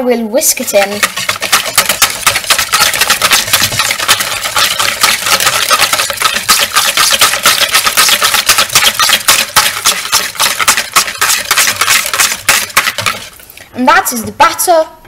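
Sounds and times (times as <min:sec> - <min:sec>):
whisk clattering against bowl: 0:00.6 - 0:13.4.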